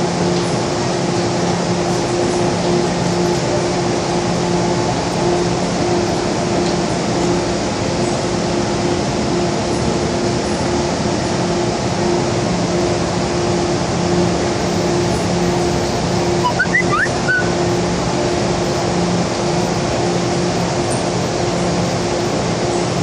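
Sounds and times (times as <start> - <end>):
train air-conditioning hum: 0.0 - 23.0
platform noise: 16.4 - 17.6
short high chirps: 16.4 - 17.6.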